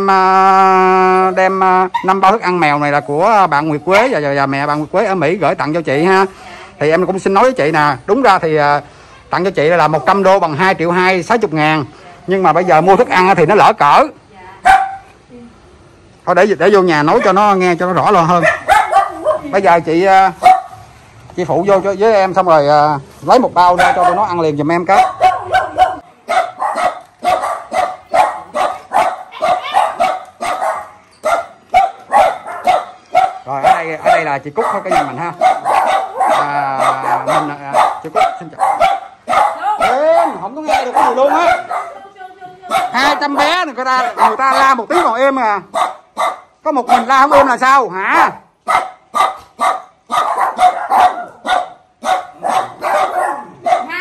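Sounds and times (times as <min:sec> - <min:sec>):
small dog yapping: 0:14.6 - 0:15.1, 0:18.4 - 0:19.6, 0:23.8 - 0:24.3, 0:25.0 - 0:42.0, 0:42.7 - 0:45.1, 0:45.7 - 0:47.5, 0:48.6 - 0:54.0.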